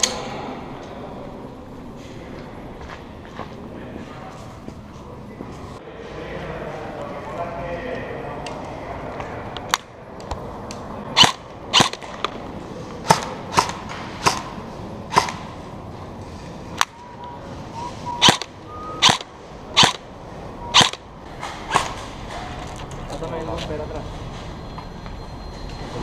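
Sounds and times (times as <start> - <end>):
airsoft gun shots: 11.2 - 12.2, 13.0 - 15.5, 18.2 - 20.0, 20.8 - 21.0.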